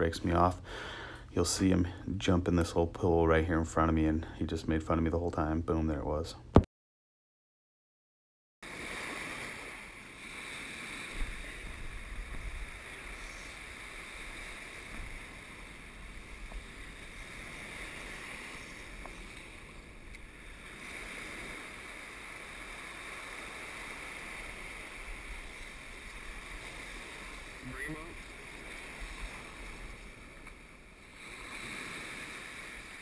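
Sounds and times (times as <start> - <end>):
surf washing over rocks: 8.6 - 33.0
wind buffeting microphone: 10.8 - 33.0.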